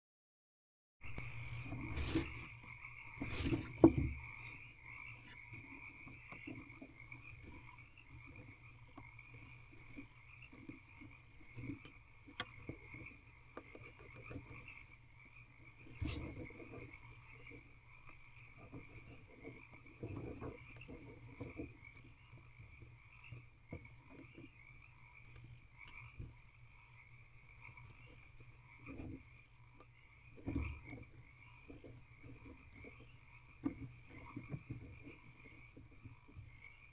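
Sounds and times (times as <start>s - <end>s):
owl rustling nest bedding: 1.2s - 14.6s, 15.8s - 17.6s.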